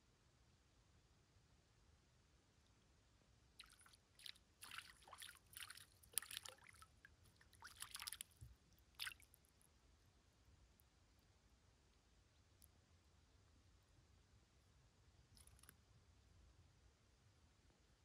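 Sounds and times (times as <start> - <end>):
fish splashing at water surface: 3.6 - 8.4, 9.0 - 9.3.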